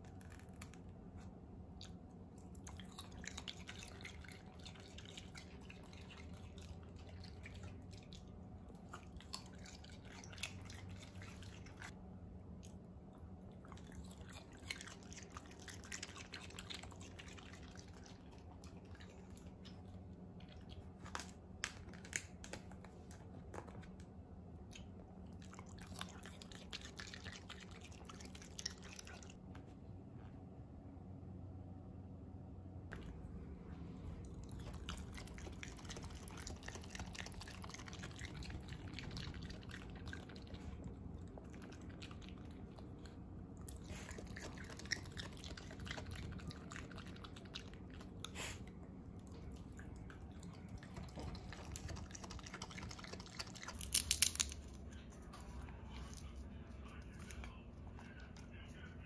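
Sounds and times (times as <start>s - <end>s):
wet smacking and crunching: 49.3s - 54.8s.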